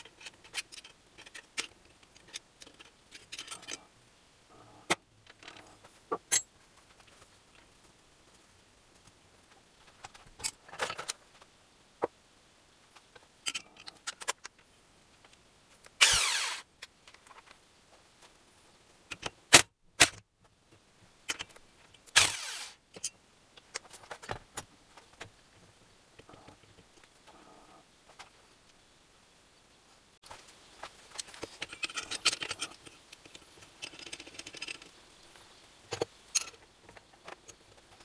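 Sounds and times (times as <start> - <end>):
metal tools clinking: 2.7 - 3.8, 31.2 - 32.9.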